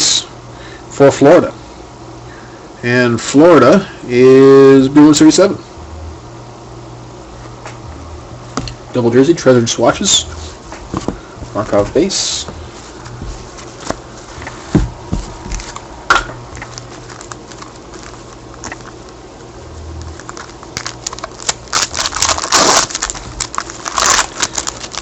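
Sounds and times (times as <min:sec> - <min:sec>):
cards shuffling: 0:12.7 - 0:15.9, 0:16.5 - 0:19.2, 0:19.9 - 0:25.0
wrapper crinkling and tearing: 0:16.5 - 0:19.2, 0:19.9 - 0:25.0.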